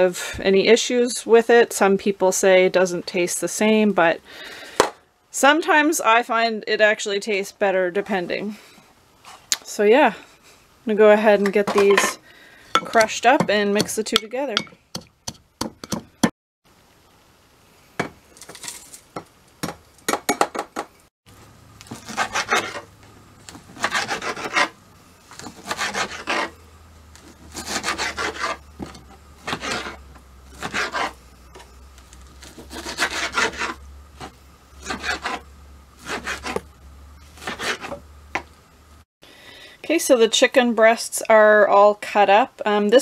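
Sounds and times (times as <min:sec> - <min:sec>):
knife sawing through raw meat: 0:21.9 - 0:22.9, 0:23.8 - 0:24.8, 0:25.4 - 0:26.6, 0:27.3 - 0:28.6, 0:29.4 - 0:31.2, 0:32.4 - 0:33.8, 0:34.8 - 0:35.4, 0:36.0 - 0:36.6, 0:37.4 - 0:38.0.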